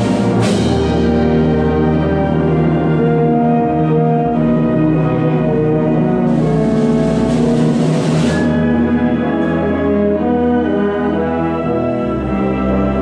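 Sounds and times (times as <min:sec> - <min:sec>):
concert band playing chords: 0:00.0 - 0:04.5, 0:05.5 - 0:09.0.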